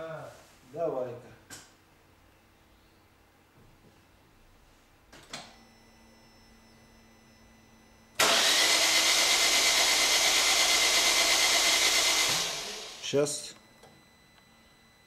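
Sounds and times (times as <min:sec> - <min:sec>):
faint hum: 0:00.0 - 0:08.2, 0:12.7 - 0:15.0
car starter motor cranking engine: 0:08.2 - 0:13.1.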